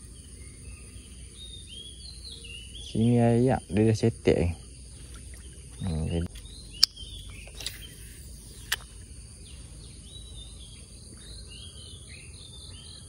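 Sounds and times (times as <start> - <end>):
birds chirping: 0.0 - 13.0
insects droning: 0.0 - 13.0
sharp click: 6.4 - 8.0, 8.6 - 8.9.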